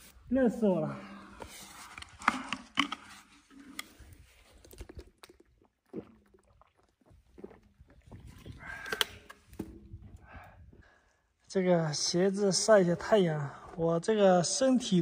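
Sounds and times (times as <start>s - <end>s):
plastic bottle handling clicks: 1.9s - 3.1s.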